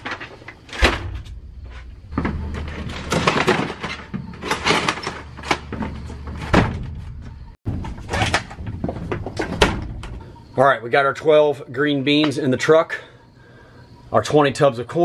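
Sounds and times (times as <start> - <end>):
wooden crates knocking and scraping: 0.0 - 10.3.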